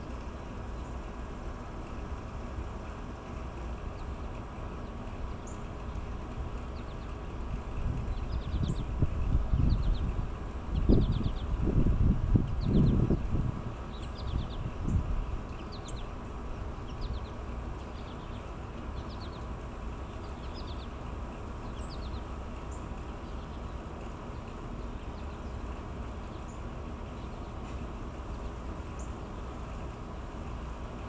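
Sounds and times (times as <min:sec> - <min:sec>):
low background rumble: 0:00.0 - 0:31.0
songbirds chirping: 0:00.0 - 0:31.0.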